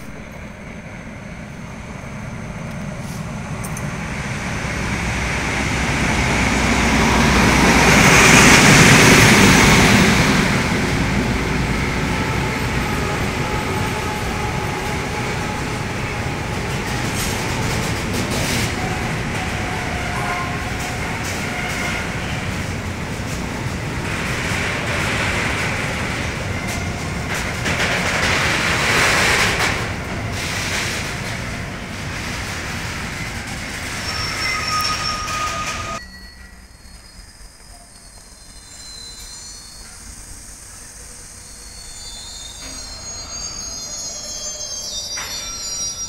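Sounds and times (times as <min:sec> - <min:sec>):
train rumbling past: 0:00.0 - 0:46.0.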